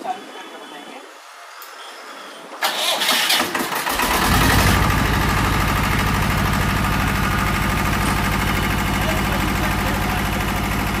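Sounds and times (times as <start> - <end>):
starter motor whirring: 2.6 - 11.0
diesel generator idling: 2.8 - 11.0.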